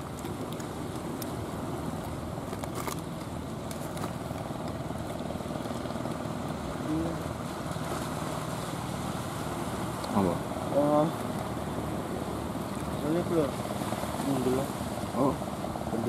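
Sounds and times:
boat engine running: 0.0s - 16.0s
wind: 0.0s - 16.0s
surf hissing: 6.2s - 16.0s.

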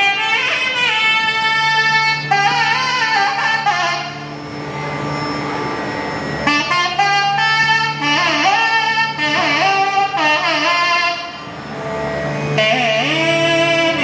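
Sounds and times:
reed pipe ornamented melody: 0.0s - 14.0s
steady drone: 0.0s - 14.0s.

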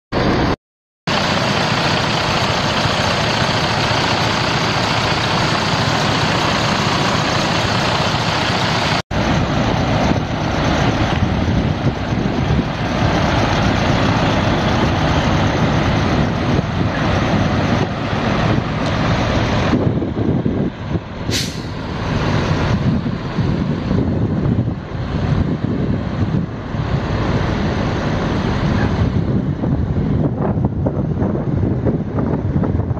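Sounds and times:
diesel truck engine running: 0.2s - 32.9s
short sharp hiss: 21.3s - 21.8s.

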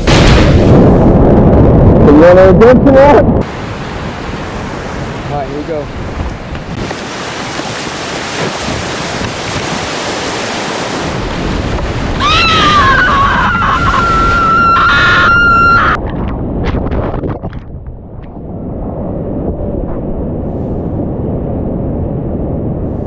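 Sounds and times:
whitewater rushing and crashing: 3.4s - 15.9s
sharp water splashes: 6.6s - 12.5s.

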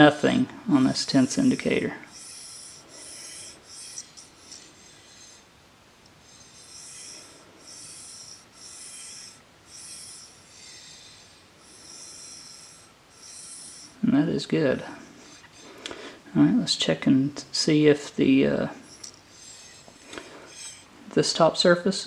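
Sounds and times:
metal vise scraping on surface: 18.8s - 20.9s.

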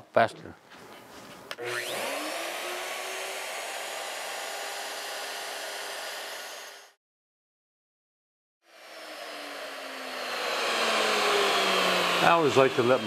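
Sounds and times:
router motor high whine: 1.6s - 7.0s, 8.7s - 13.0s.

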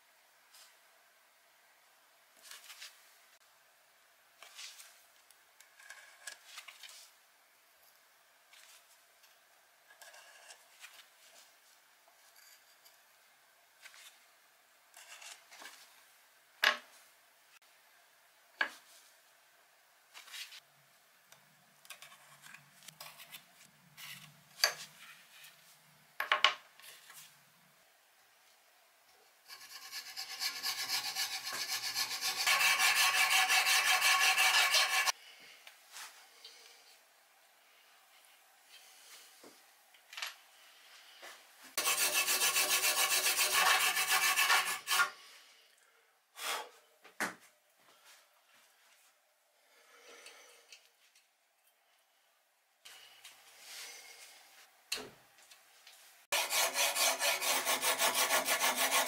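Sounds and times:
hacksaw cutting: 29.5s - 35.1s, 41.8s - 45.1s, 56.4s - 59.0s.

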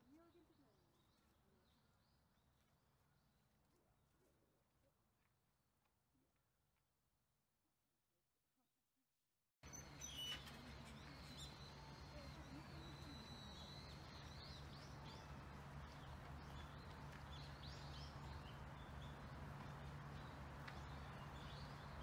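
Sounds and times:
small birds chirping: 9.6s - 22.0s.

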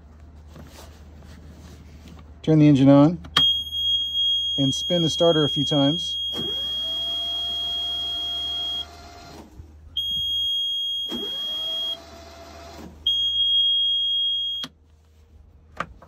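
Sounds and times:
alarm buzzer beeping: 3.4s - 8.9s
starter motor whine: 6.2s - 13.4s.

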